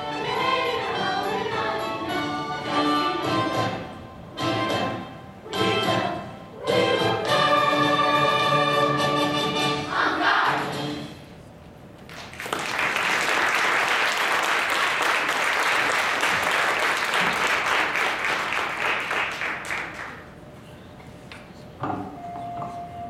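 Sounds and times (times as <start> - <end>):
choir singing chord: 0.0 - 10.8
audience applauding: 12.1 - 20.3.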